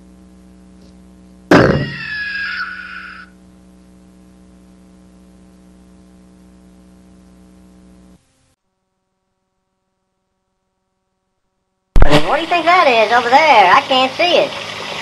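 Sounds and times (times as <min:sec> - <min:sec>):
electrical hum with hiss: 0:00.0 - 0:15.0.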